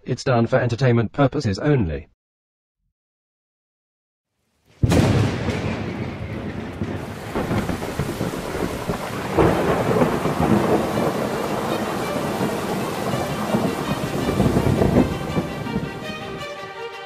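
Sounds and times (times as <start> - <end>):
thunder rumbling: 4.8 - 16.5
heavy rain: 4.8 - 16.8.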